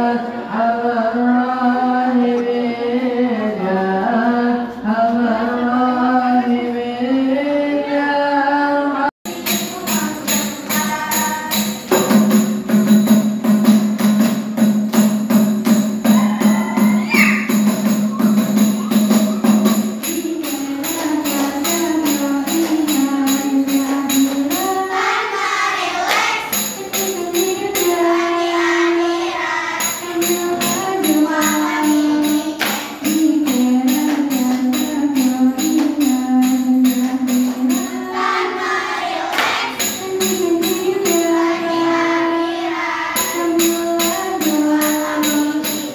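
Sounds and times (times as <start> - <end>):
people singing: 0.0 - 12.2, 16.0 - 45.9
hands clapping in rhythm: 26.0 - 26.7, 32.6 - 33.1, 39.3 - 40.0.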